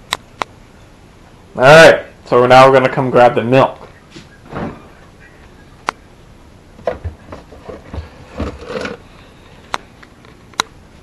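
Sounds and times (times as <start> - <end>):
soft bumping and rubbing: 6.8 - 9.0.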